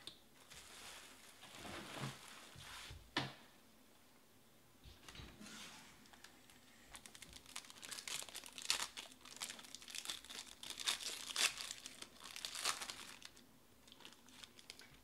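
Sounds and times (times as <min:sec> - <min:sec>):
foil wrapper tearing and crinkling: 0:06.9 - 0:14.9.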